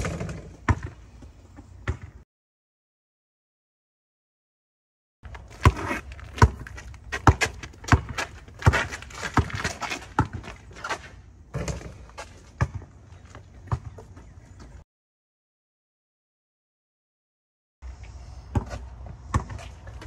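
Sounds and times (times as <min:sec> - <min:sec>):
basketball bouncing on concrete: 0:00.0 - 0:01.0, 0:01.8 - 0:02.2, 0:05.3 - 0:13.0, 0:13.6 - 0:14.3, 0:18.5 - 0:20.0.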